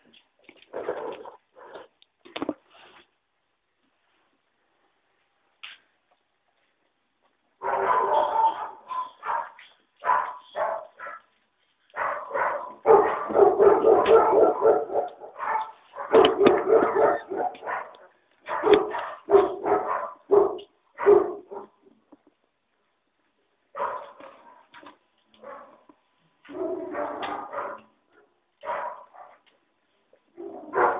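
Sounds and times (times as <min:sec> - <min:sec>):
puppies yipping and barking: 0:07.8 - 0:09.7.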